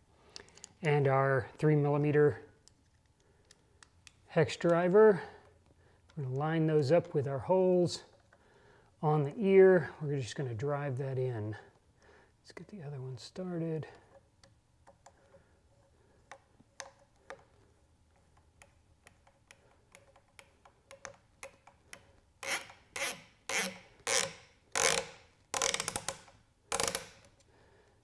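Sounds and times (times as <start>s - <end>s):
screw scraping into plastic: 18.2s - 27.5s.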